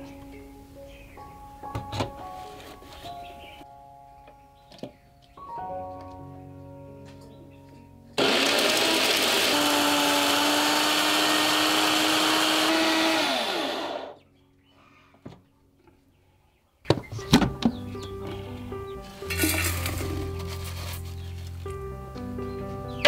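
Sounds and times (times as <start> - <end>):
blender running: 8.2 - 14.2.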